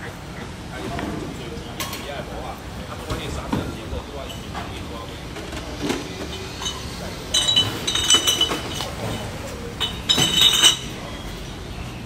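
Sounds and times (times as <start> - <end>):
glass bottles clinking in crates: 5.9 - 11.1.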